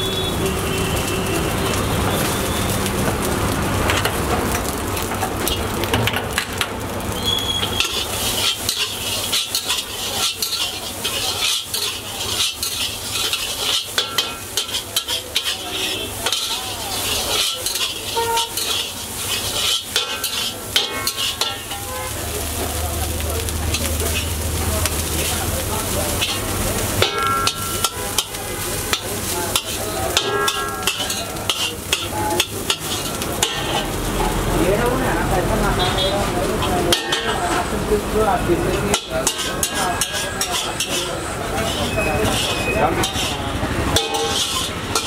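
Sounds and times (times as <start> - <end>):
rice sizzling in wok: 0.0 - 45.0
metal ladle scraping wok: 7.4 - 22.8, 23.7 - 34.5, 36.5 - 37.7, 38.7 - 45.0.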